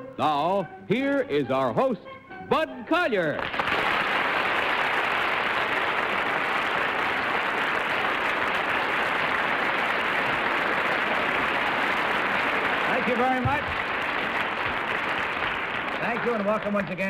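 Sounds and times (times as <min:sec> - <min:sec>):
audience applauding: 0:03.4 - 0:17.0.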